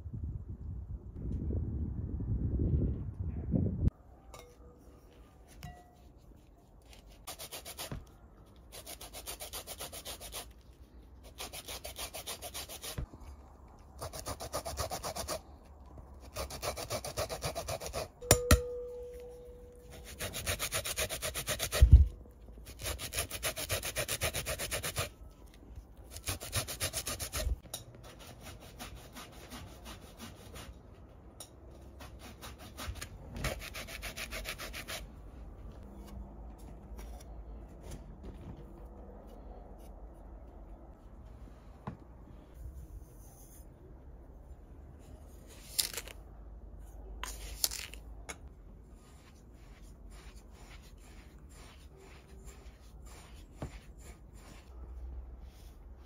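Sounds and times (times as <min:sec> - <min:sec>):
ringing clink: 0:18.2 - 0:19.9.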